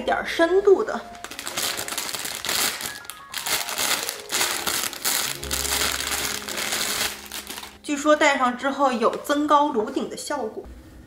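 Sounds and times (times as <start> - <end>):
soft background music: 0.0 - 11.0
plastic bag crinkling: 1.1 - 7.9.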